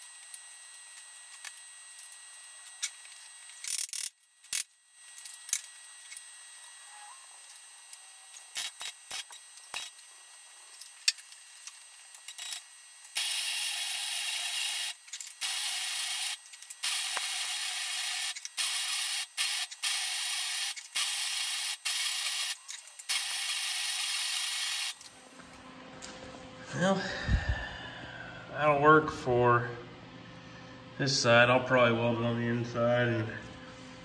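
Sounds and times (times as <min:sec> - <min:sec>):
welder arc crackling: 0:10.7 - 0:25.2.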